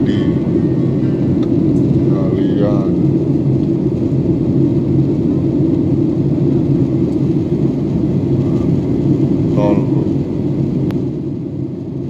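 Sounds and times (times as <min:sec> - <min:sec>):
airliner cabin rumble: 0:00.0 - 0:12.0.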